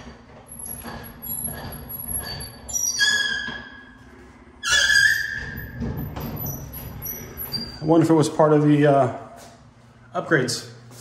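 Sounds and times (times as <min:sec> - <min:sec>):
door hinges squeaking: 0:00.0 - 0:04.0, 0:04.6 - 0:08.0.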